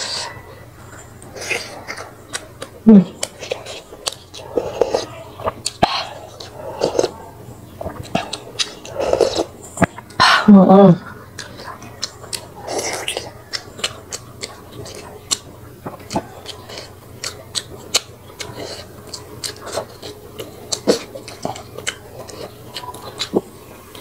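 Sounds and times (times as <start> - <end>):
person chewing food: 0.0 - 24.0
mouth clicks and smacks: 1.2 - 7.2, 7.8 - 10.2.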